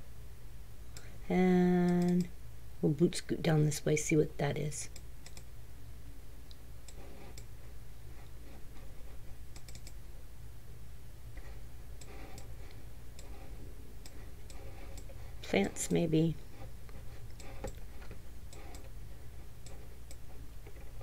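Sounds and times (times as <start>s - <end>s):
low steady hum: 0.0s - 21.0s
computer mouse clicks: 1.8s - 2.3s, 4.9s - 5.5s, 6.8s - 7.5s, 9.5s - 10.0s, 11.4s - 15.2s, 17.3s - 18.9s, 19.6s - 21.0s.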